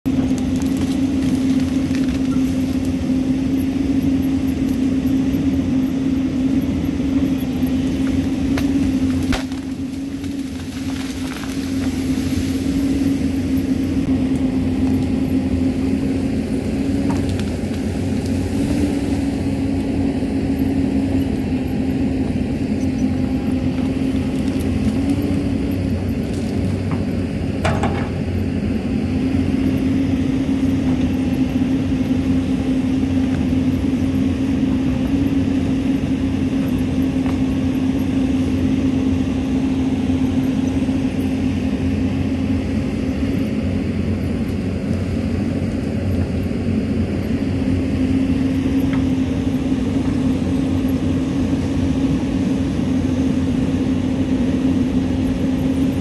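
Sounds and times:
excavator diesel engine running: 0:00.0 - 0:56.0
knocks from working machine: 0:27.6 - 0:28.2.

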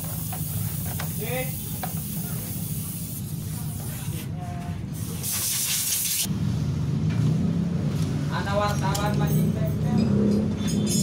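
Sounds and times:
compressed air hissing: 0:00.0 - 0:04.3, 0:04.9 - 0:06.3.

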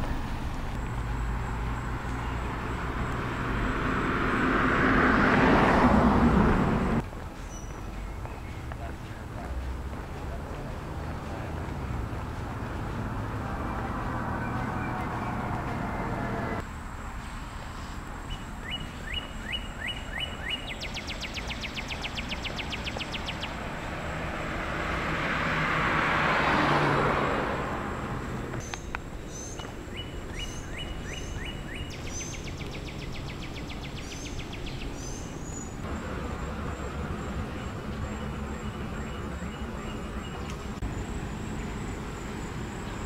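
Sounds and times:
car passing: 0:00.0 - 0:43.0
outdoor background noise: 0:00.0 - 0:43.0
bird chirping: 0:07.3 - 0:16.6, 0:18.2 - 0:23.8, 0:28.5 - 0:35.9, 0:36.7 - 0:43.0.

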